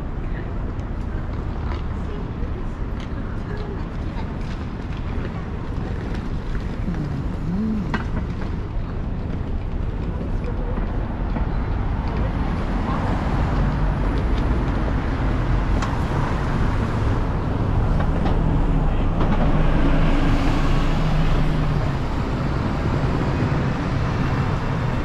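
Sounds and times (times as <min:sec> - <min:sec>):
city street traffic: 0:00.0 - 0:25.0
bus passing close by: 0:12.1 - 0:25.0.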